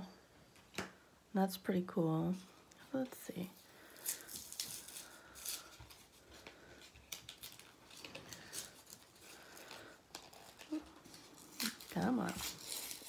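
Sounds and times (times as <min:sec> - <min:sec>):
plastic blister pack crackling: 0:03.8 - 0:13.0.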